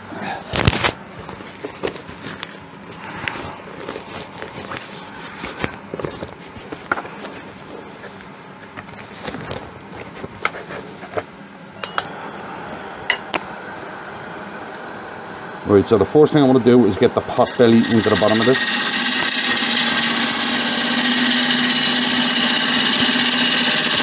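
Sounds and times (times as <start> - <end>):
respirator fan whirring: 0.0 - 24.0.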